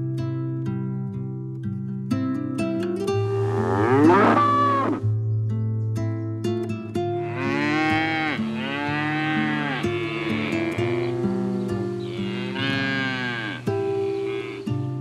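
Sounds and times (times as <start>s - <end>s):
plucked-string tune: 0.0s - 15.0s
cow mooing: 3.4s - 5.0s, 7.2s - 14.7s.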